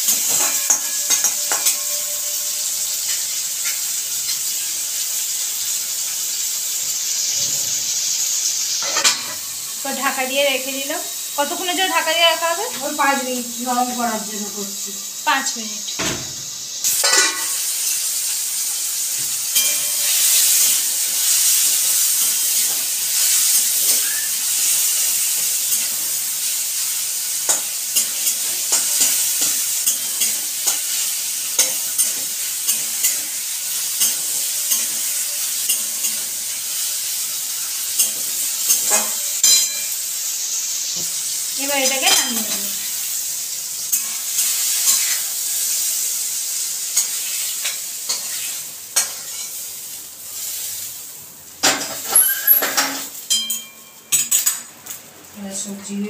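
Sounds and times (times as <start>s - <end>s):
food sizzling in hot oil: 0.0s - 56.0s
spatula scraping metal pan: 0.1s - 3.8s.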